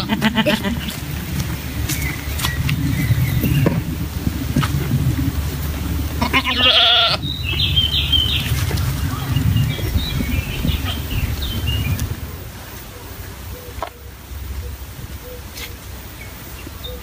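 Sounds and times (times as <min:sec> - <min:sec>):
goat bleating: 0:00.0 - 0:00.9, 0:06.2 - 0:07.2
steady low rumble: 0:00.0 - 0:17.0.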